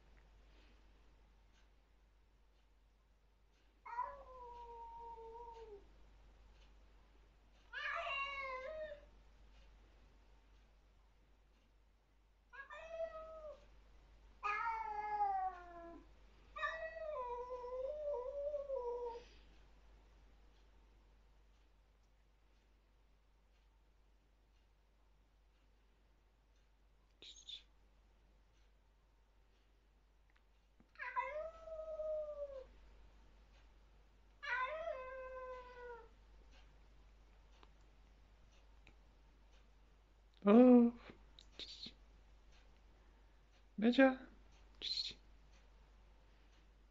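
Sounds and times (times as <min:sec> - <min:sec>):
cat yowling: 0:14.4 - 0:16.0, 0:31.0 - 0:32.7, 0:34.4 - 0:36.1.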